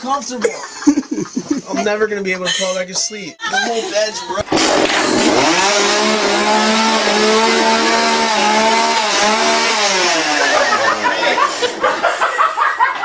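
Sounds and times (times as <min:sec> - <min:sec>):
chainsaw engine revving: 0:04.4 - 0:12.8.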